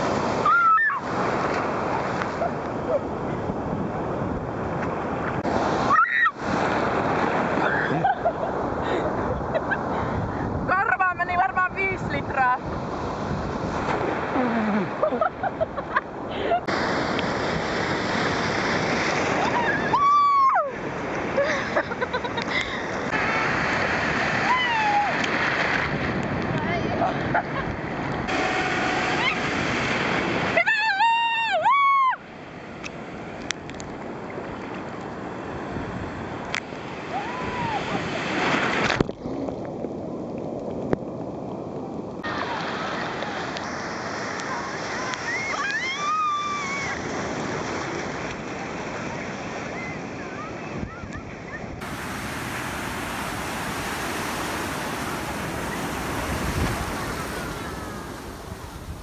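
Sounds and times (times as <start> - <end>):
surf rushing and churning: 0.0 - 59.0
person squealing: 14.4 - 14.9.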